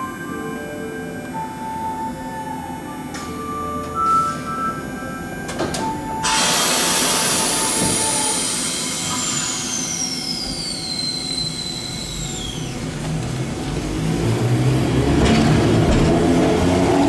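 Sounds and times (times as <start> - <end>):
tram motor whine gliding down: 2.1 - 17.0
air hiss burst: 6.2 - 10.7.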